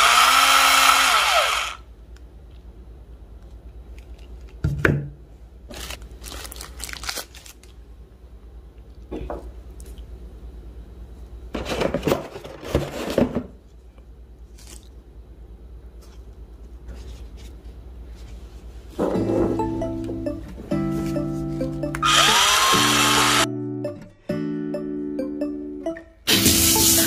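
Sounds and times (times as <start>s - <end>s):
low steady hum: 1.7s - 22.1s
plastic packaging crinkling: 5.7s - 7.8s.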